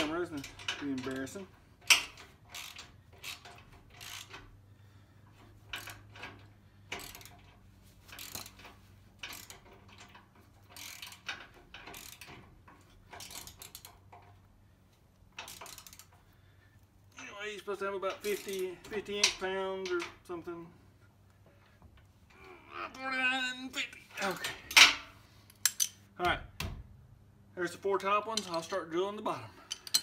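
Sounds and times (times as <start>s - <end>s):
ratchet wrench clicking: 0.0s - 4.6s, 5.7s - 14.1s, 15.4s - 16.2s, 25.5s - 26.0s, 29.7s - 30.0s.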